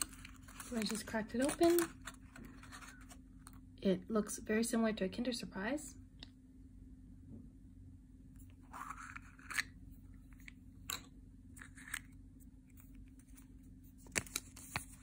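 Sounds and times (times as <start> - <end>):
plastic capsule scraping rustle: 0.0 - 3.2, 8.6 - 9.8.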